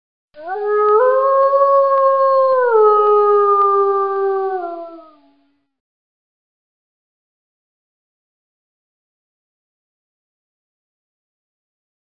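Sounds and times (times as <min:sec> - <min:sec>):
long loud howl: 0:00.4 - 0:05.4.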